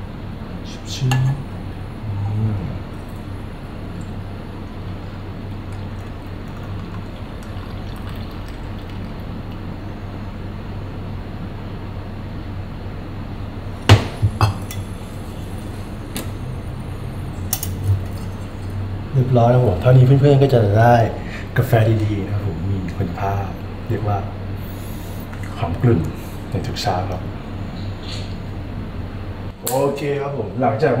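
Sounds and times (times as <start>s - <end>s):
coffee pouring into a cup: 2.9s - 9.8s.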